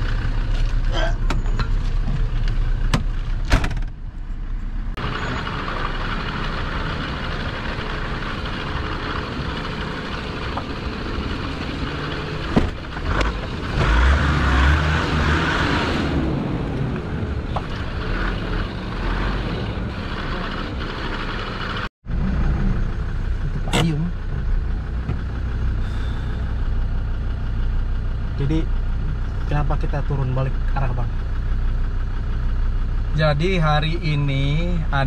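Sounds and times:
off-road vehicle engine: 0.0 - 35.0.

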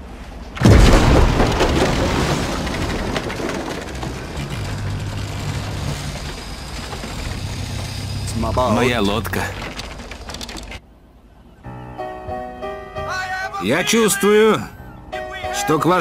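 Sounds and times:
churned water rushing: 0.0 - 11.0
loud crash: 0.6 - 8.4
boat engine droning: 3.6 - 12.3.

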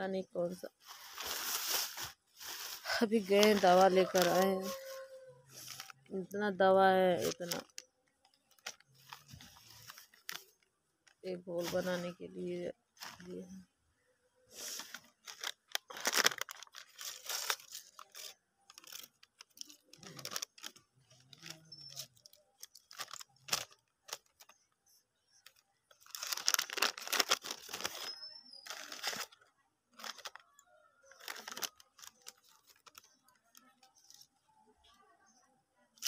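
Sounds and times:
paper packets tearing and crinkling: 0.8 - 6.1, 7.2 - 7.8, 8.4 - 10.6, 11.6 - 12.1, 13.0 - 13.3, 14.6 - 24.6, 25.4 - 29.4, 30.0 - 30.4, 31.1 - 34.3.

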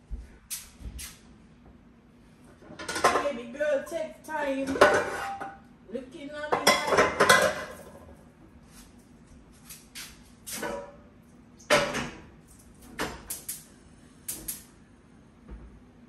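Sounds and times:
pots and utensils knocking: 6.5 - 7.8.

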